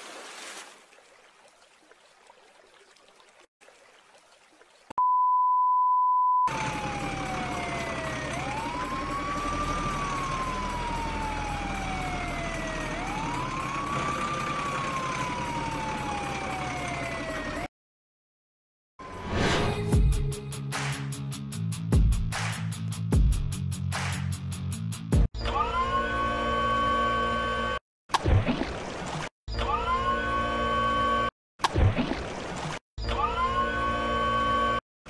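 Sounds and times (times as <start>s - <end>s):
electronic wailing siren: 6.5s - 17.7s, 25.4s - 27.8s, 29.6s - 31.3s, 33.0s - 34.8s.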